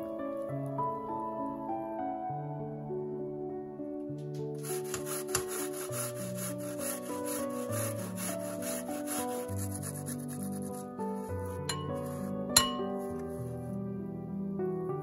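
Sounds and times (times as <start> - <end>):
soft background music: 0.0 - 15.0
ginger grated on metal grater: 4.6 - 13.3.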